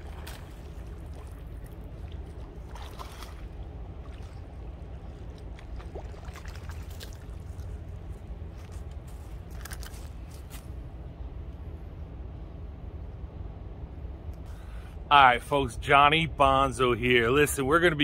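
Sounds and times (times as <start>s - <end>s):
fish splashing in water: 0.0s - 8.1s
steady low rumble: 0.0s - 18.0s.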